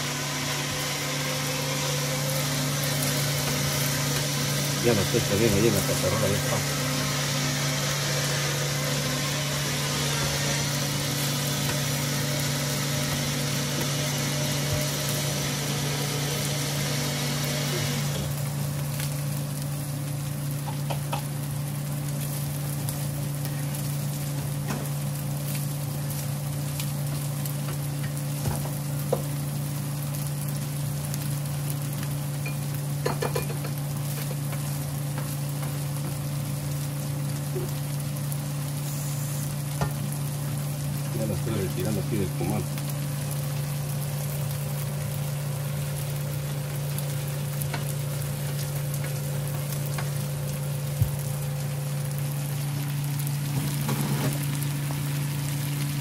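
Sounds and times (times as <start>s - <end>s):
food sizzling on a griddle: 0.0s - 56.0s.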